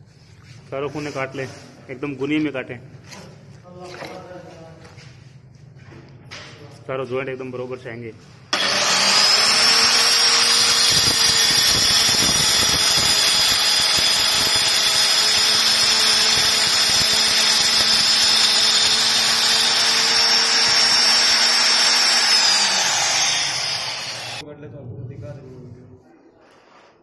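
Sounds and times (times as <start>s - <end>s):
marble cutter whining and grinding: 8.5s - 24.4s.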